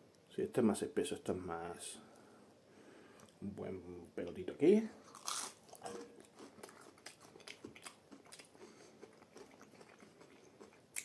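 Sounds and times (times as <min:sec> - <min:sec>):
crunchy chewing: 0:05.0 - 0:11.0.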